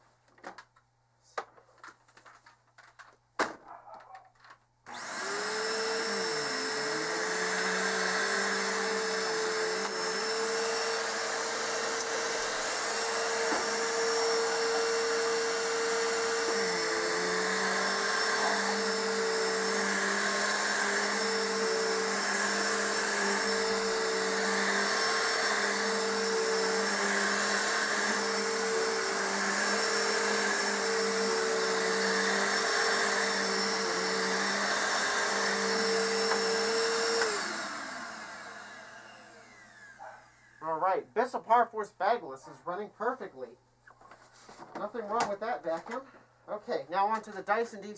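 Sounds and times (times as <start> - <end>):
upright vacuum running on carpet: 4.9 - 40.6.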